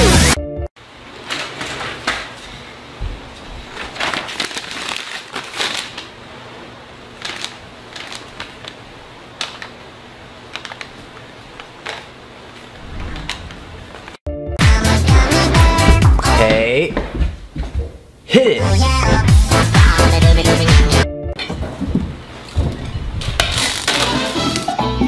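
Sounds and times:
plastic fans being handled: 1.2 - 2.6, 10.5 - 14.2, 21.5 - 24.8.

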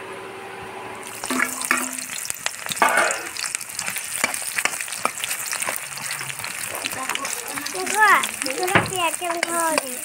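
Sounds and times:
onions sizzling in hot oil: 1.0 - 10.0
spoon scraping metal pot: 1.2 - 8.7.

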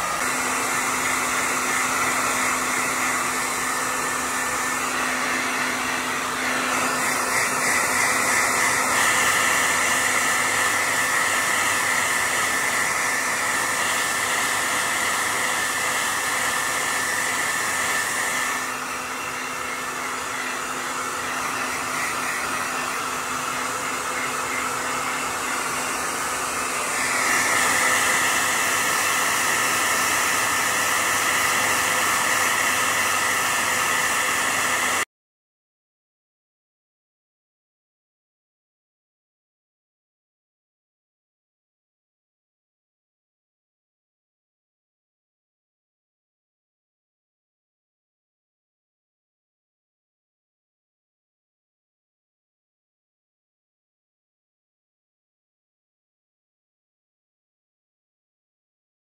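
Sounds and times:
blow dryer running: 0.0 - 35.1.

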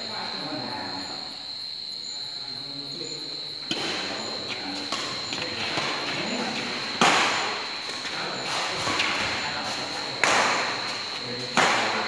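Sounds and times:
steady high whine: 3.9 - 12.0
racket hitting shuttlecock: 7.0 - 9.1.

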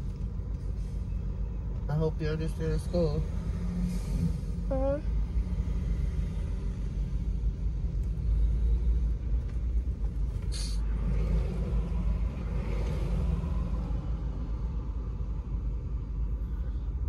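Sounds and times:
car cabin rumble: 6.9 - 13.6
brief hiss: 10.4 - 10.9.

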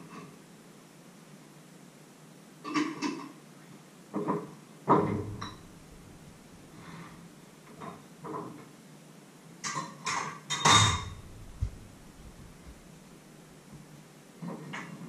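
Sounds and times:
clattering knocks and clinks: 5.1 - 6.7, 10.5 - 12.9.

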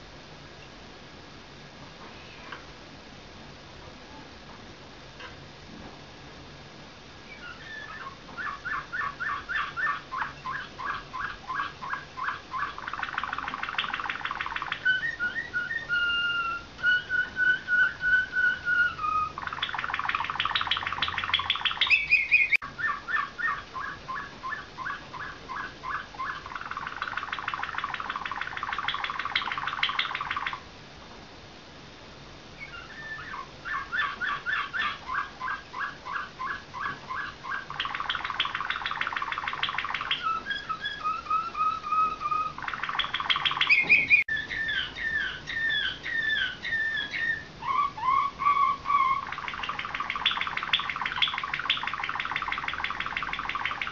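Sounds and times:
canary singing trills: 7.3 - 30.6, 32.6 - 53.9.

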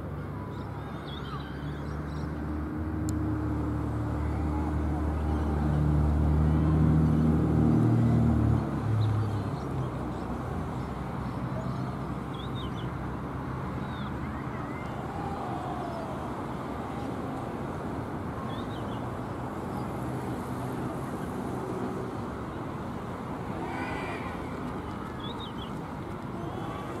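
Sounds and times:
steady outdoor rush: 0.0 - 27.0
faint distant shouts: 0.1 - 2.4, 4.0 - 6.9, 13.7 - 19.0, 23.3 - 27.0
engine running close by: 0.1 - 27.0.

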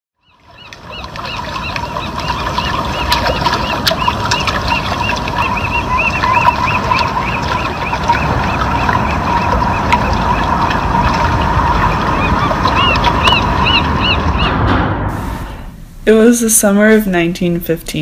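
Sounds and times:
bird chirping: 0.2 - 14.6
low outdoor rumble: 0.4 - 18.0.

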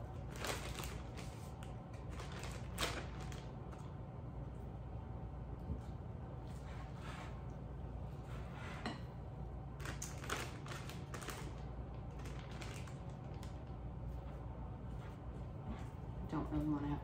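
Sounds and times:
plastic bag crinkling: 0.2 - 3.9, 9.8 - 13.7.

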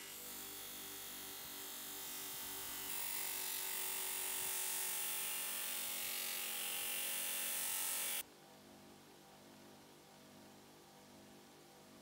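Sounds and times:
bench grinder motor hum: 0.0 - 8.2.

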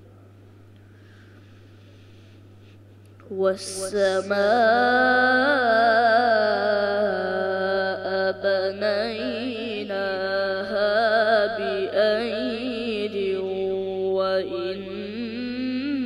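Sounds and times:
short breaths: 0.9 - 3.0
boy reciting melodically: 3.3 - 16.0.

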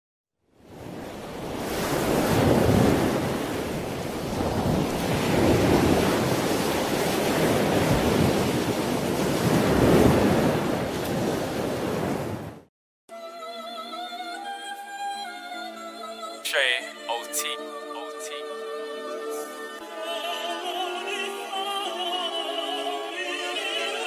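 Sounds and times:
ocean waves breaking: 0.6 - 12.7.

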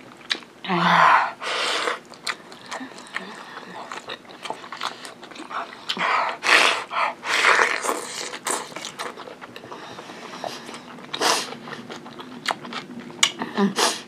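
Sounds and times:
wet chewing and lip-smacking: 0.1 - 0.5, 1.9 - 13.5.

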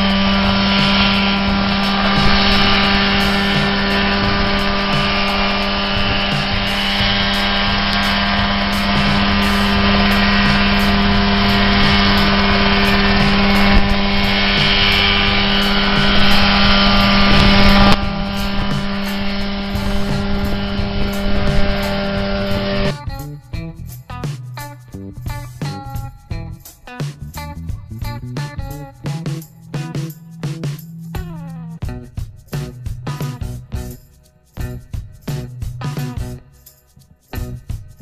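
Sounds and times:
rotor whirring: 0.0 - 23.0
piston engine droning: 0.0 - 34.0.

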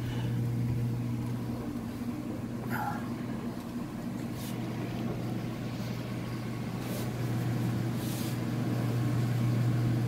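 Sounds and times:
low mechanical hum: 0.0 - 10.0
soft rustles or scrapes: 4.2 - 4.7, 6.8 - 7.2, 7.9 - 8.4.

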